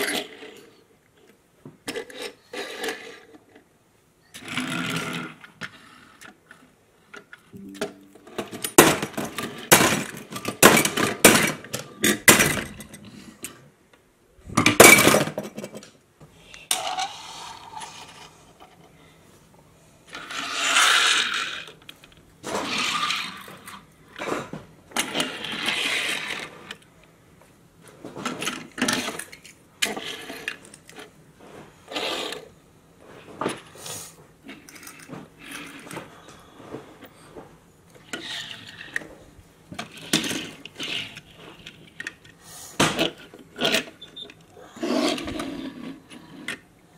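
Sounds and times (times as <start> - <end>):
toy car wheels rolling: 1.8 - 3.6, 4.3 - 6.6, 16.7 - 18.9, 20.1 - 24.4, 25.0 - 26.8, 28.3 - 31.1, 31.9 - 32.5, 38.0 - 39.1, 39.8 - 42.3, 43.0 - 44.2, 44.8 - 46.6.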